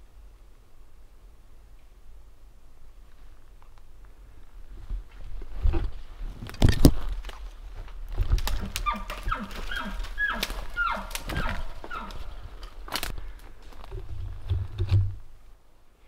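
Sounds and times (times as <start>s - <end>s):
dry sticks snapping: 6.5s - 14.0s
short falling calls: 8.6s - 12.6s.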